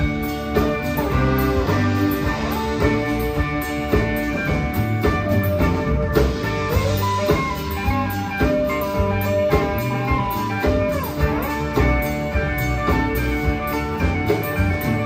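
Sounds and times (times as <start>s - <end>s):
electric guitar lines: 0.0s - 15.0s
fiddle: 0.0s - 15.0s
steady drum beat: 0.0s - 15.0s
strummed acoustic guitar: 0.0s - 15.0s.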